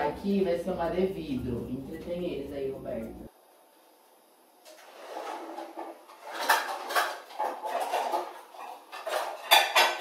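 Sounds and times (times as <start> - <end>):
dishes and cookware clattering: 4.8 - 10.0.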